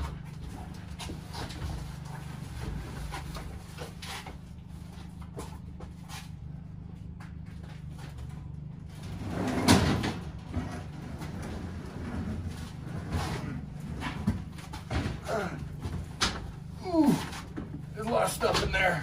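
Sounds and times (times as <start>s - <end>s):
steady low hum: 0.0s - 19.0s
clattering clunk: 9.1s - 16.7s.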